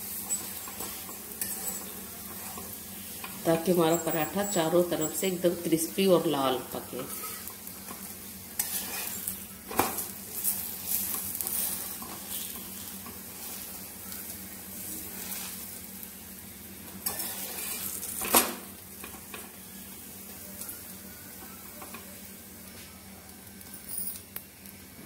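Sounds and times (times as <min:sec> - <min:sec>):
flatbread sizzling in oil: 0:00.0 - 0:25.0
spatula scraping pan: 0:00.1 - 0:05.2, 0:07.0 - 0:09.4, 0:15.0 - 0:15.7, 0:17.0 - 0:18.2.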